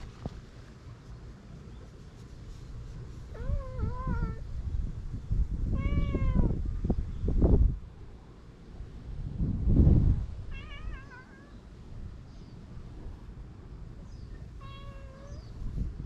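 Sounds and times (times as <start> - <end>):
cat meowing: 5.7 - 6.6, 10.5 - 11.6, 14.6 - 15.5
low rumble: 6.4 - 10.9.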